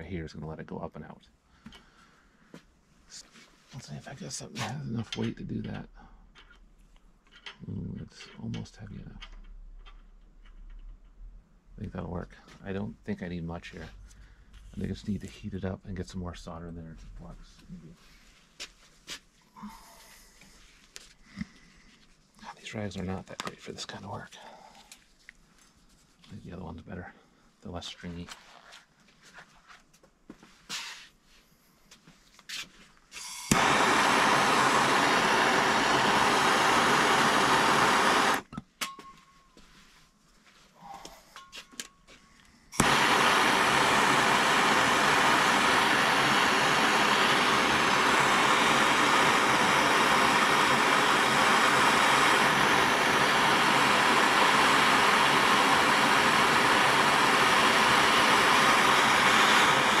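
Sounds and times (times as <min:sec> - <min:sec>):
gas torch hissing: 0:33.2 - 0:38.4, 0:42.8 - 1:00.0
torch clicks: 0:33.2 - 0:38.5, 0:42.8 - 1:00.0.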